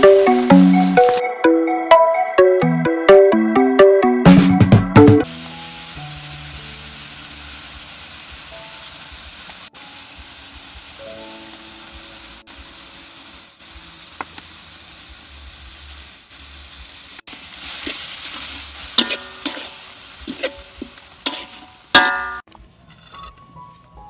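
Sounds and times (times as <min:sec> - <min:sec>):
filling sizzling in a wok: 0:00.0 - 0:01.2, 0:05.2 - 0:22.5
metal spatula scraping wok: 0:17.5 - 0:23.5.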